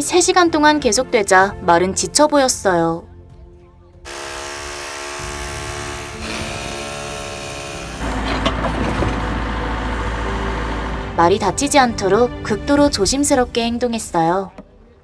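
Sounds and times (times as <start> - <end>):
engine running: 5.3 - 11.5
engine knocks: 8.0 - 11.1.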